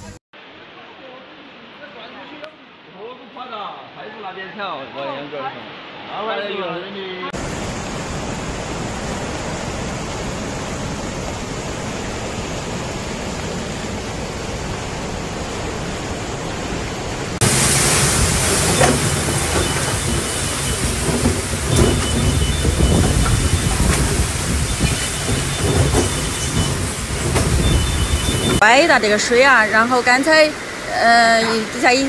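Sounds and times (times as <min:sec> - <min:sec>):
heavy rain pouring: 0:00.4 - 0:32.0
floodwater rushing: 0:07.3 - 0:32.0.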